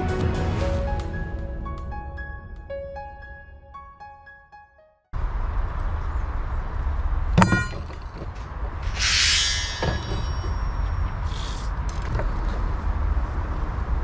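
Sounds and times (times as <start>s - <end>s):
metal rods clanking: 7.4s - 11.2s
short hiss: 8.8s - 10.4s
metal rod scraping on rod: 8.8s - 11.6s.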